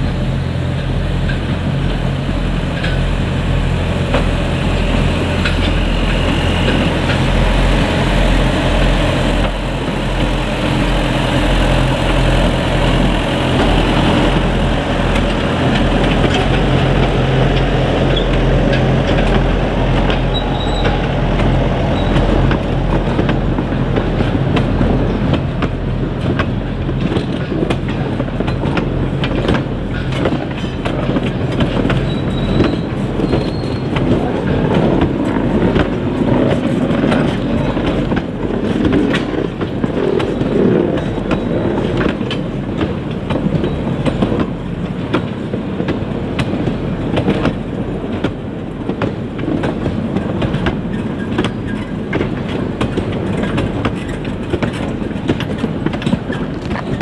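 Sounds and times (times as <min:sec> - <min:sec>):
diesel locomotive engine: 0:00.0 - 0:57.0
wagon wheels clattering on track: 0:13.5 - 0:57.0.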